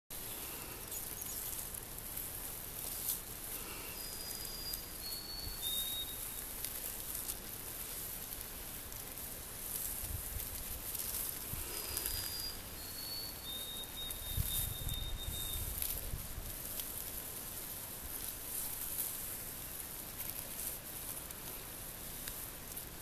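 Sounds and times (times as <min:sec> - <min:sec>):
faint outdoor hiss: 0:00.1 - 0:23.0
sparrow whistling song: 0:03.8 - 0:06.5, 0:11.8 - 0:16.0.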